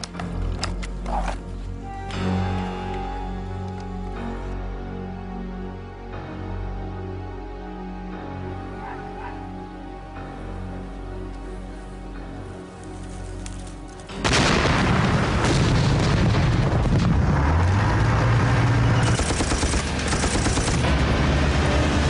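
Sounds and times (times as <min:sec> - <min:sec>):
sustained low music: 0:00.0 - 0:22.0
heavy booming explosions: 0:14.2 - 0:22.0
rapid gunfire: 0:19.0 - 0:21.0.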